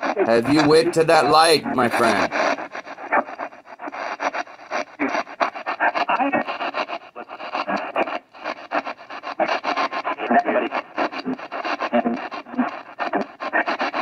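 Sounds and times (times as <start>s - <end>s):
radio static and broken fragments: 0.0s - 8.2s.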